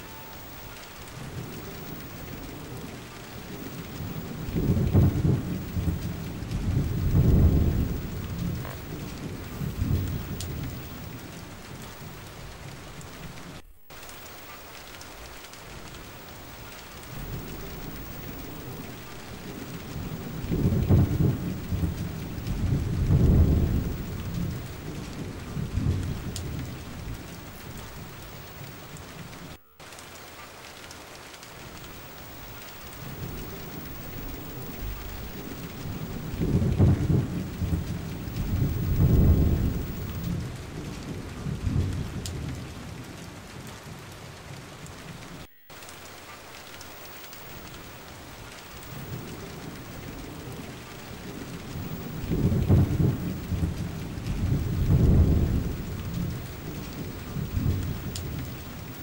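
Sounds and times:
rolling thunder: 0.0 - 14.2, 14.8 - 29.6, 31.6 - 43.2, 47.4 - 59.0
steady rain hiss: 0.0 - 59.0.

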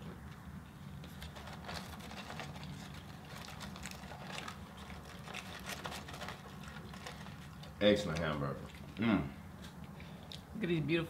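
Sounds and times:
chewing: 1.0 - 9.0
paper packaging rustling: 1.0 - 9.0.

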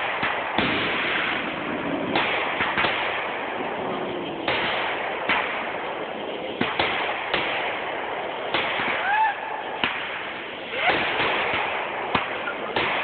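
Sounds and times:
fireworks bangs: 0.0 - 13.0
hiss of burning fireworks: 0.0 - 13.0.

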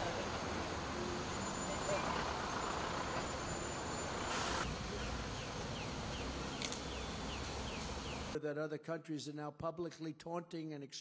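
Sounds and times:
low traffic rumble: 0.0 - 8.4.

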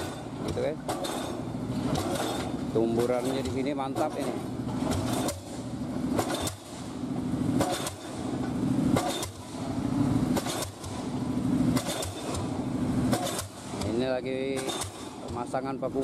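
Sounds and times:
pile hammer bangs: 0.0 - 6.8, 7.6 - 8.2, 8.9 - 9.6, 10.3 - 11.0, 11.7 - 12.5, 13.1 - 15.4.

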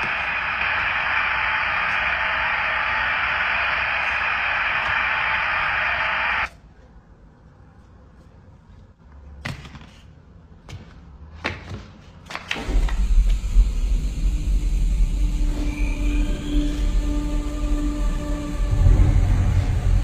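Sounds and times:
television static hissing: 0.0 - 6.5
low rumbling horror score: 12.6 - 20.0.

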